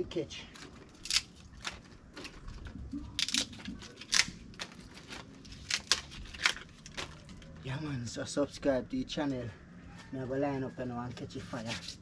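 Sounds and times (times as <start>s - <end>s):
firewood sticks clicking and knocking: 0.5s - 7.8s.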